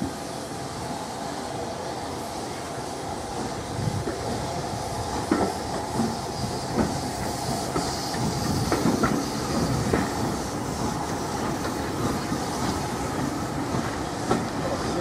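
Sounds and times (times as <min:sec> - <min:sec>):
steam hissing: 0:00.0 - 0:15.0
train wheels knocking over rail joints: 0:05.1 - 0:15.0.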